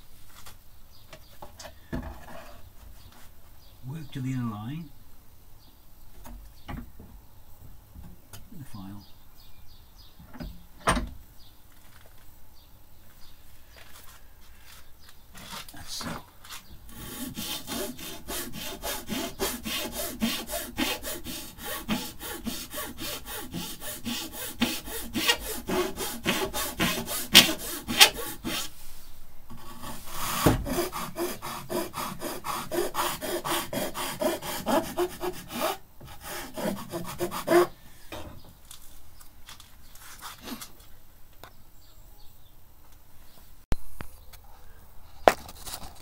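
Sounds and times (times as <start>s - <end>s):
hand file rasping on wood: 16.9s - 28.7s, 29.5s - 37.8s.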